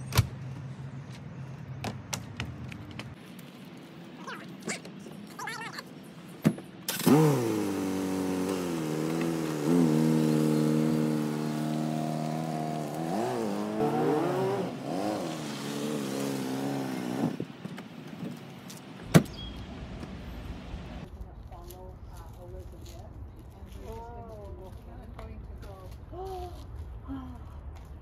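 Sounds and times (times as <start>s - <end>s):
car engine revving: 6.9s - 17.4s
car door shutting: 19.0s - 19.8s.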